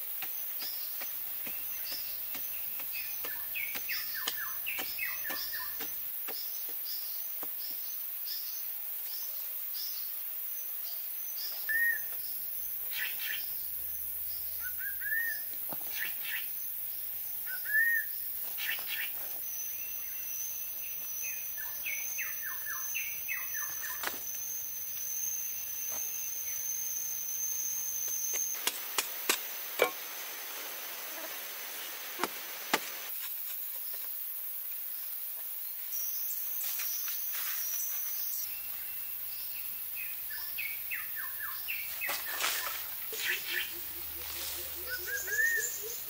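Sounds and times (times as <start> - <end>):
small birds chirping: 0.2 - 8.5, 11.3 - 28.6, 38.2 - 46.0
high insect drone: 9.8 - 46.0.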